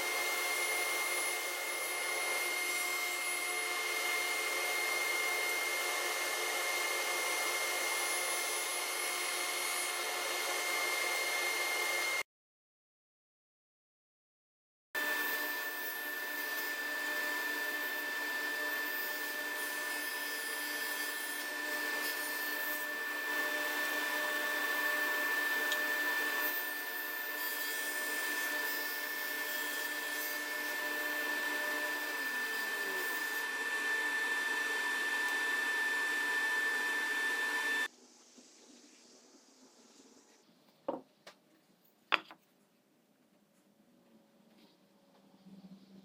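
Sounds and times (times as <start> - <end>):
table saw whining: 0.0 - 12.2, 15.0 - 37.9.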